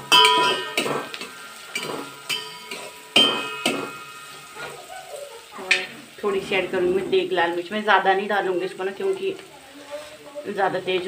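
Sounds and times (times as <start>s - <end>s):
metal spoon knocking against pot: 0.0s - 4.3s
faint sizzle of oil: 0.0s - 11.0s.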